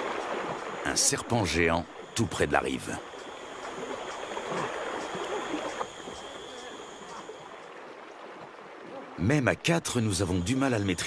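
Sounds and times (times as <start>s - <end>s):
water sloshing and splashing: 0.0s - 10.0s
faint high-pitched tone: 3.8s - 7.5s.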